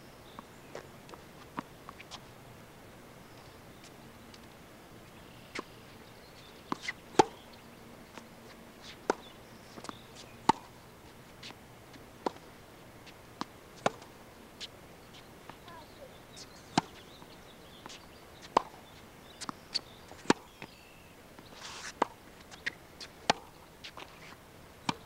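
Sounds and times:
tennis ball struck with racket: 6.7s - 7.4s, 9.0s - 10.7s, 16.7s - 17.0s.

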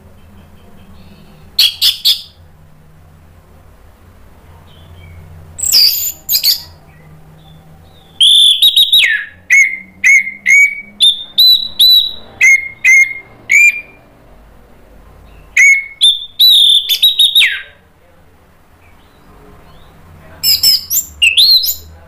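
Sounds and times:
thrush singing: 3.6s - 14.6s.

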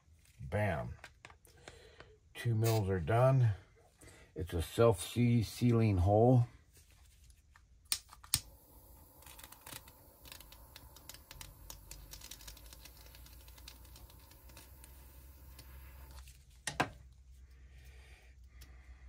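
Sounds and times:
torch lighter clicking: 7.9s - 16.2s
torch flame hissing: 8.4s - 16.2s.

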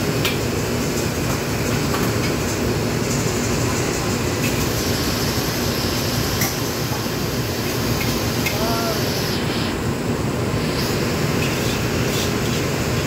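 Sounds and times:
gas burner rushing: 0.0s - 13.0s.

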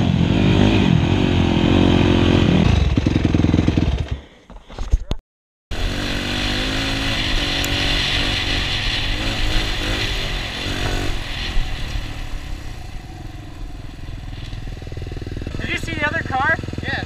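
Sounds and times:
dirt bike engine revving: 0.0s - 4.3s, 5.7s - 17.0s
wind rushing past camera: 5.8s - 15.9s.

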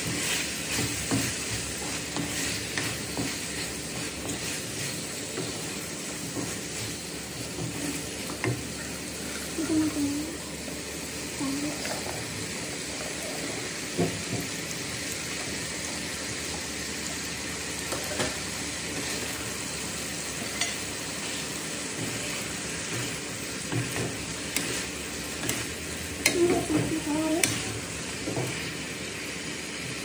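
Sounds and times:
spatula scraping and knocking pan: 0.0s - 8.7s, 20.4s - 28.7s
food sizzling in a frying pan: 0.0s - 30.0s.

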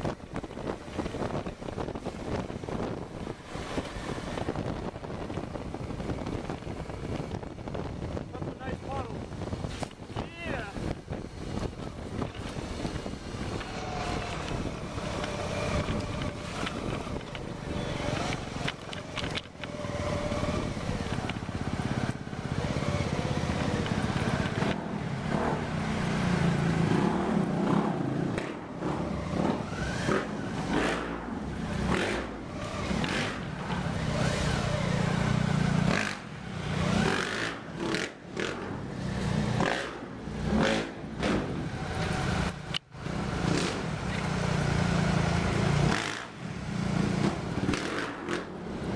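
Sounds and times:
wind noise on microphone: 0.0s - 44.0s
motorcycle engine revving: 11.5s - 48.9s.

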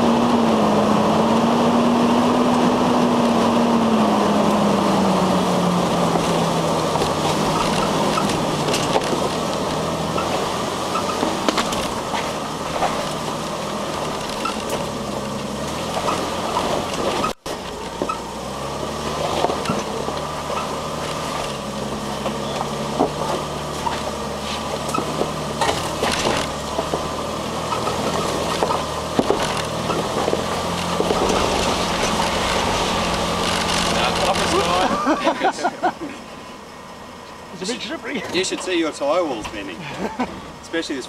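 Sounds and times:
engine running at low revs: 0.0s - 41.0s
tyres crunching over rocks: 5.7s - 35.7s
knocks and rattles: 6.0s - 18.2s, 19.2s - 34.8s.

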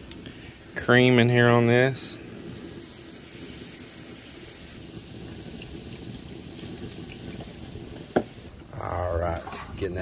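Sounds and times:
liquid sizzling in pan: 0.0s - 10.0s
milk pouring into pan: 2.2s - 8.5s.

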